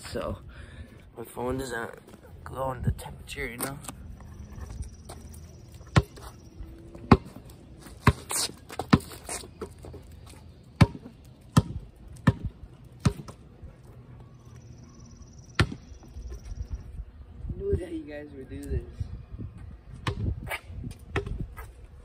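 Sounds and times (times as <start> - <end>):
basketball bouncing on concrete: 5.0 - 13.5, 15.6 - 16.0, 20.0 - 21.7.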